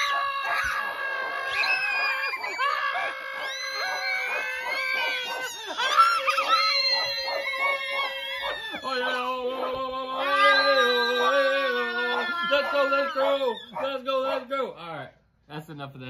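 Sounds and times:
people howling and shrieking: 0.0 - 14.6.

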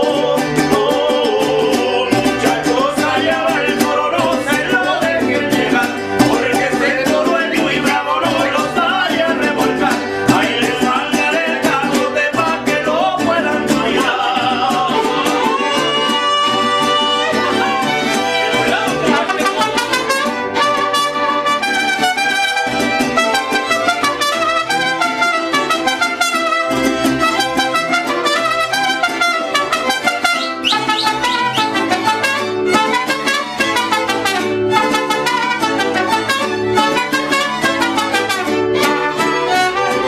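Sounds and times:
men singing: 0.0 - 21.4, 29.7 - 40.0
strummed guitars: 0.0 - 40.0
violins and trumpet: 15.0 - 40.0.

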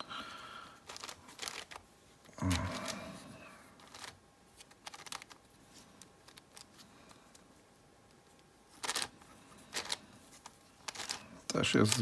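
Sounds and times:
puzzle cube layers clicking: 0.9 - 1.8, 3.8 - 5.4.

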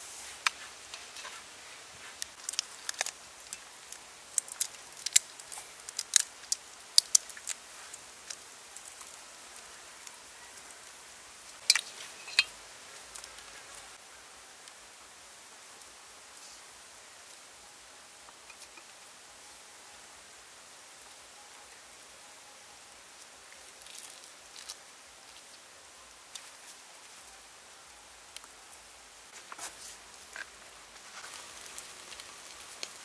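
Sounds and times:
faint steady hiss: 0.0 - 33.0
shrimp shell clicking and snapping: 4.3 - 7.6.

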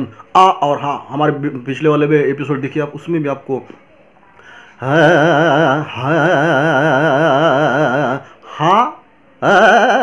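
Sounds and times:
man singing with vibrato: 4.8 - 10.0.

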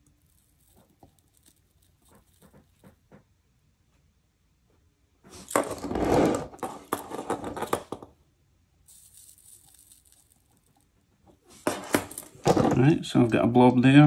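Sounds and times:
metal chassis scraping on wooden table: 5.3 - 8.0.

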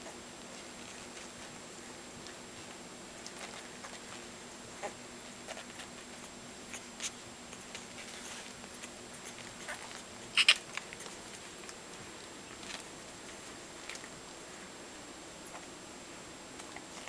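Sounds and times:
puppies squeaking: 8.1 - 11.1.

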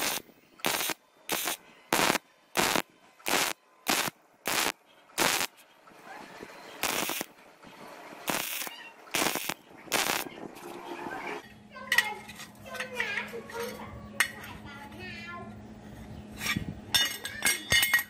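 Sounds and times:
crackling welding arc bursts: 0.0 - 5.6, 6.8 - 7.3, 8.2 - 10.4.

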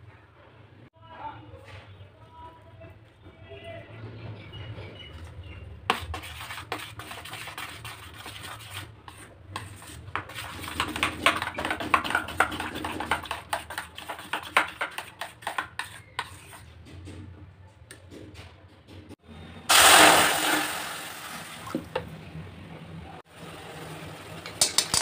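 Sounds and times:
spoon clicking against metal bowl: 24.5 - 25.0.

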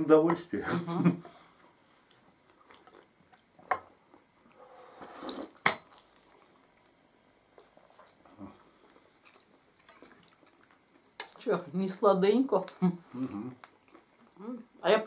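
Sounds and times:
sipping hot tea: 4.7 - 5.7.

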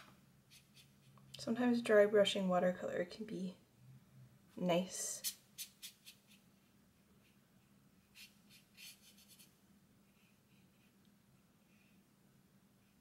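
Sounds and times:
brush scratching on paper: 0.5 - 1.3, 5.1 - 11.0.

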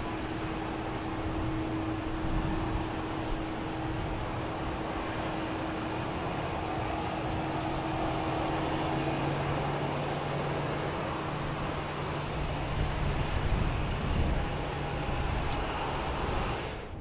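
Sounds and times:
faint engine hum: 0.0 - 17.0
machinery and vehicle noise: 0.0 - 17.0.

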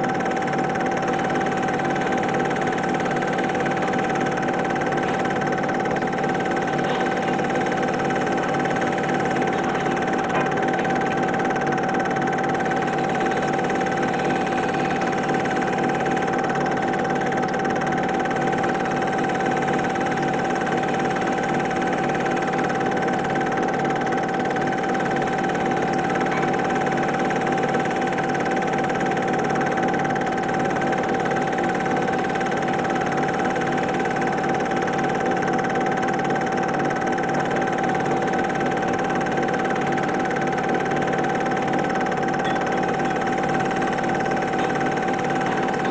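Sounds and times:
film projector whirring: 0.0 - 45.9
projector clatter: 0.0 - 45.9
constant high tone: 42.4 - 43.2.

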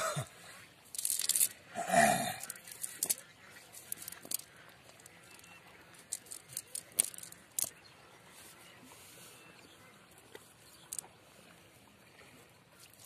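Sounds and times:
wet net clicks and rustles: 0.9 - 1.6, 2.4 - 7.8.

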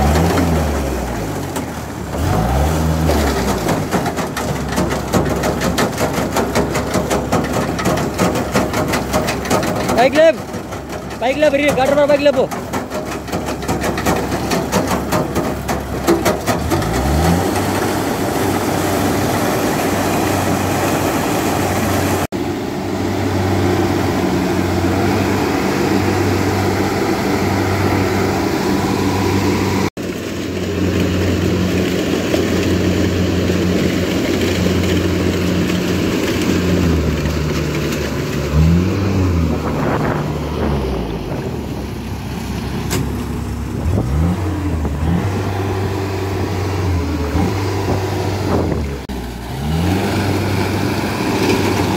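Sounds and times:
diesel engine running: 0.0 - 51.9
water splashing: 13.2 - 22.3.

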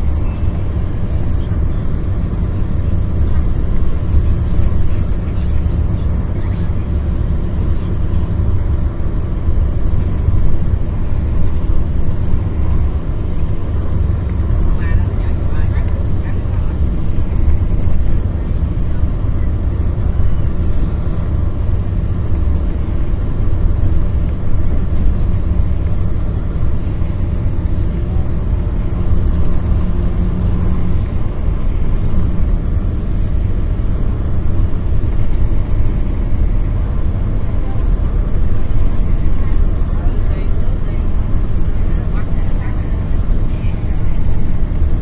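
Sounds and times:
bus engine and road rumble: 0.0 - 45.0.

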